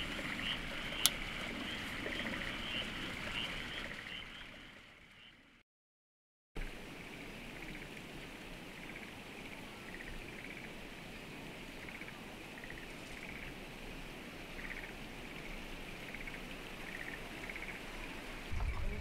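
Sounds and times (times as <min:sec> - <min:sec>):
frogs croaking: 0:00.0 - 0:05.6, 0:07.4 - 0:11.0, 0:11.7 - 0:13.8, 0:14.4 - 0:19.0.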